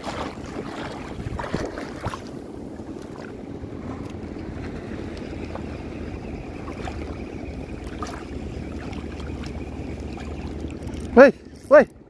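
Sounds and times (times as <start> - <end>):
sea water lapping: 0.0 - 12.0
steady wind: 0.0 - 12.0
faint small ticks: 7.8 - 12.0.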